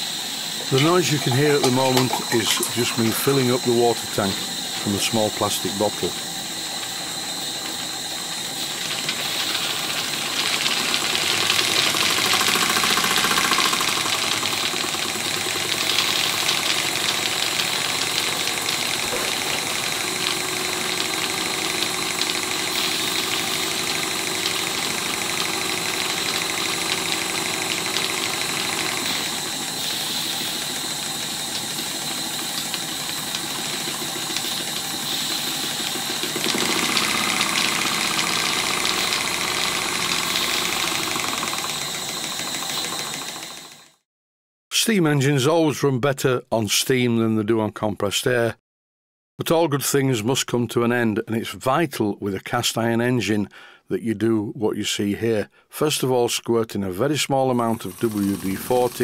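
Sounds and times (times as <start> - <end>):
steam hissing: 0.0 - 43.8, 57.5 - 59.0
model steam engine running: 0.0 - 44.0, 57.5 - 59.0.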